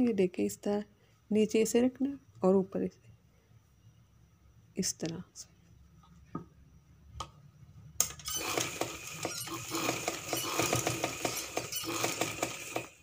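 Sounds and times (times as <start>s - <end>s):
sewing machine stitching: 8.0s - 13.0s.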